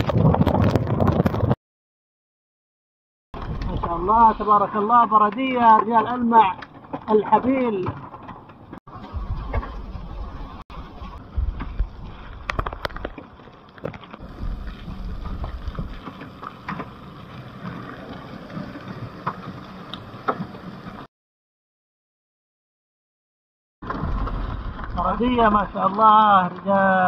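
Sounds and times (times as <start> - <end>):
low rumbles: 3.4 - 21.1, 23.8 - 26.1.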